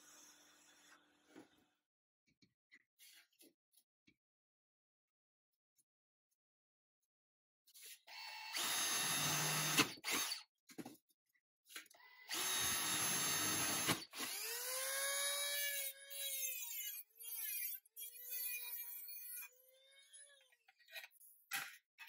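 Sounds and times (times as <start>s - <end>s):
drill boring into thin steel: 8.4s - 10.4s, 12.3s - 20.4s.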